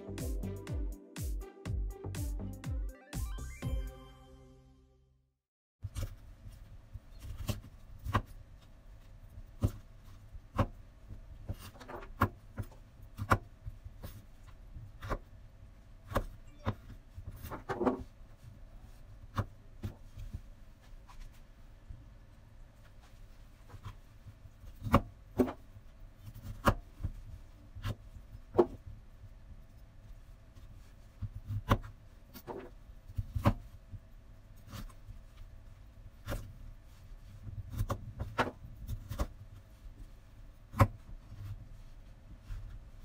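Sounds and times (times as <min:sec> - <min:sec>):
soft handling rustles: 0:17.2 - 0:24.8.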